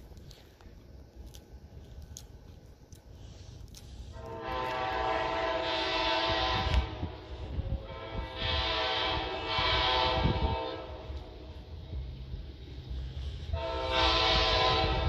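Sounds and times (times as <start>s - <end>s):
low background rumble: 0.0s - 15.0s
locomotive horn blast: 4.1s - 11.4s, 13.5s - 15.0s.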